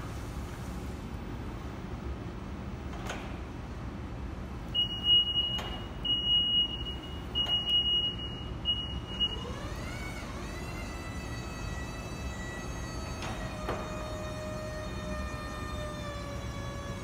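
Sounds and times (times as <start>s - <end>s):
forklift reversing alarm beeps: 4.7s - 10.2s.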